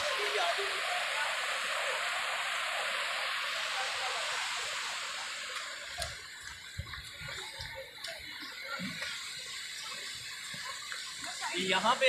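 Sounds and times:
stream rushing over rocks: 0.0 - 12.0
footsteps on dirt path: 5.6 - 11.6.

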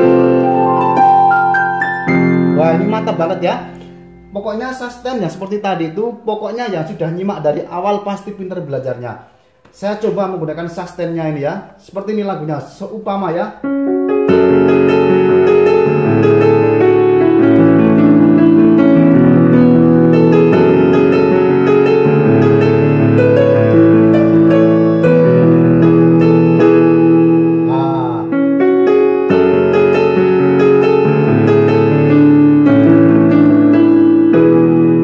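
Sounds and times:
keyboard playing piano chords: 0.0 - 5.7, 13.6 - 35.0.

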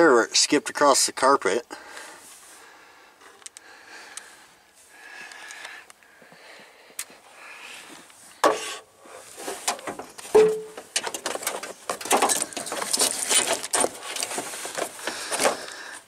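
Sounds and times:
crackling clicks: 3.4 - 4.3, 5.2 - 6.1
handling scrapes and rustles: 7.8 - 15.8.

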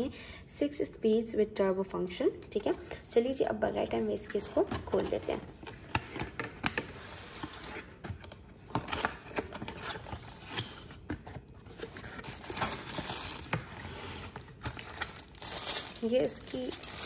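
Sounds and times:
plastic bag crinkling: 14.2 - 17.0.

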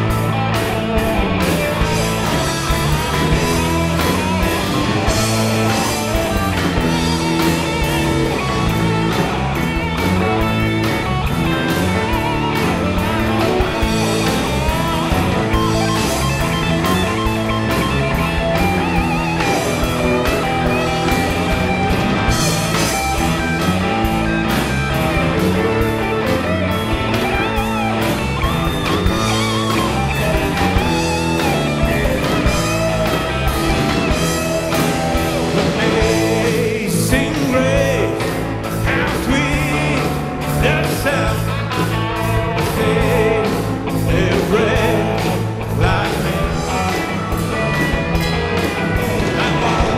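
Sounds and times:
rock music: 0.0 - 49.9
person singing: 34.7 - 47.2, 49.0 - 49.9.

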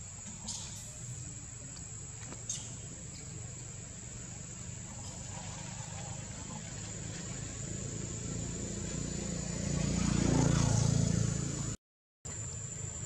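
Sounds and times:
vehicle engine passing by: 3.7 - 13.0.

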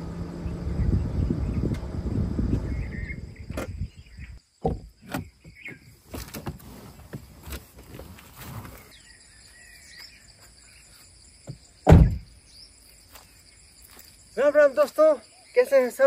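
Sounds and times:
bird chirps: 2.6 - 6.2, 8.7 - 16.0
car door knocks and thuds: 3.5 - 3.9, 4.6 - 7.2, 11.5 - 12.3
footsteps on dry ground: 13.0 - 14.2.

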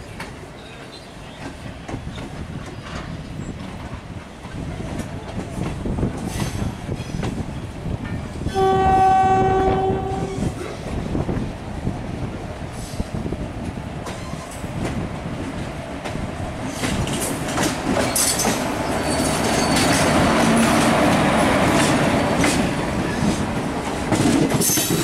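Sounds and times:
train wheels clattering over rail joints: 0.1 - 8.5, 12.9 - 25.0
train horn: 8.4 - 10.5.

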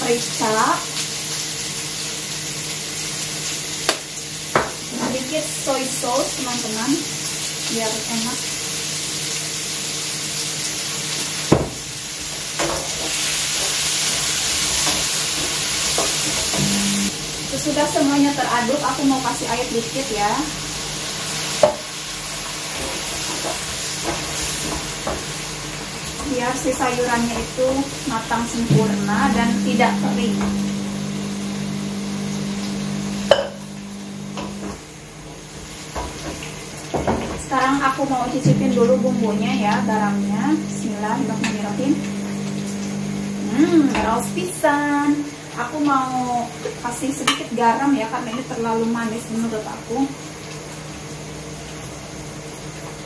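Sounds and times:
vegetables sizzling in a pan: 0.0 - 53.0
steady low hum: 16.5 - 17.2, 26.8 - 34.8, 38.1 - 44.9.

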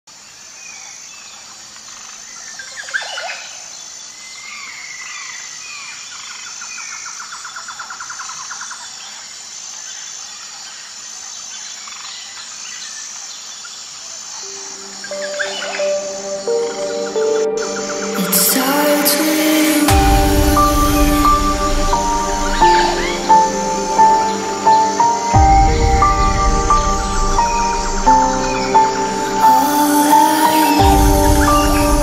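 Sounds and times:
pulsing insect chorus: 14.2 - 32.0.

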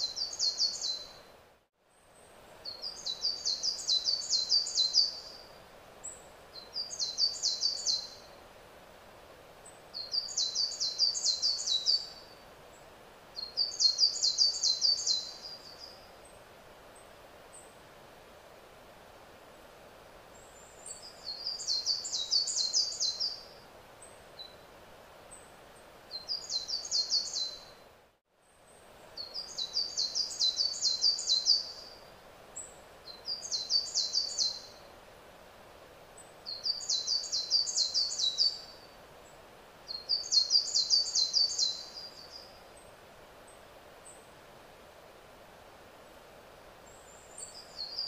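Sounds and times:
songbird singing: 0.0 - 1.3, 1.9 - 8.4, 9.6 - 16.4, 20.3 - 27.8, 28.4 - 34.9, 36.2 - 44.4, 46.8 - 48.0
faint outdoor background noise: 0.0 - 48.0.

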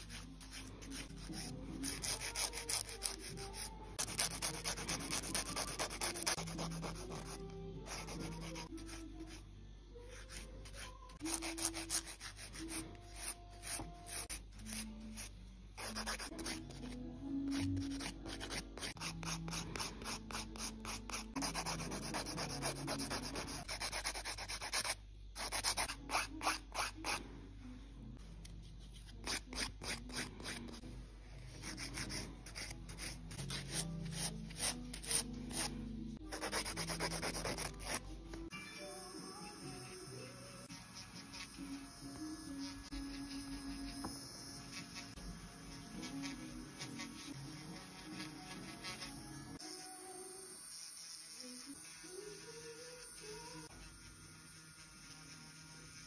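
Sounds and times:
nail file rasping on fingernail: 36.3 - 38.0.

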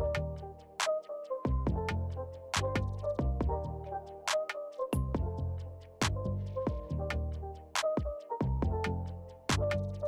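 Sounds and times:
background music with beat and bass: 0.0 - 10.0.

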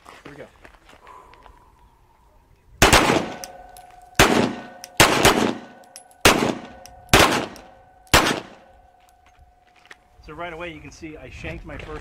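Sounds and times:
handgun shots with echo: 2.8 - 8.7.

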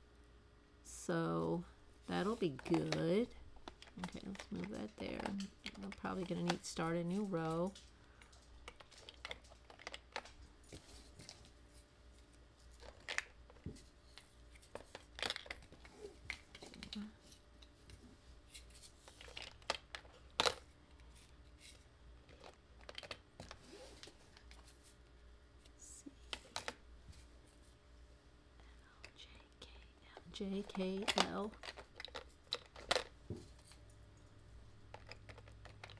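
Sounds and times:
plastic containers clicking and tapping: 2.5 - 6.8, 30.1 - 33.4.

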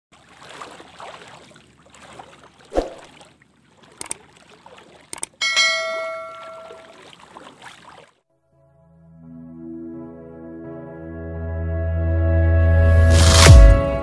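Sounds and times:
river water splashing: 0.1 - 8.3
bright bell-like chime: 5.4 - 6.9.

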